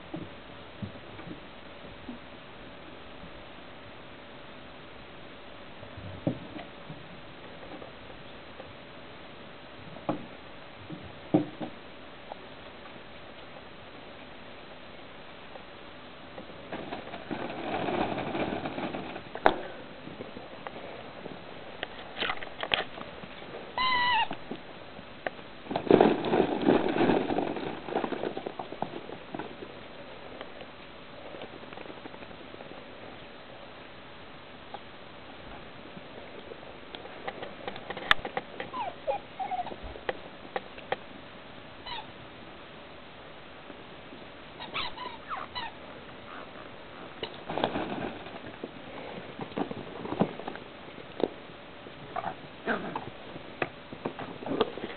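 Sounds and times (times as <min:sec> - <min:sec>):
puppies scrabbling and rustling: 0:16.4 - 0:24.7, 0:25.7 - 0:30.0, 0:37.0 - 0:40.8, 0:44.6 - 0:51.4
puppy whining: 0:23.8 - 0:24.4, 0:38.6 - 0:39.9, 0:41.8 - 0:42.1, 0:44.6 - 0:47.4.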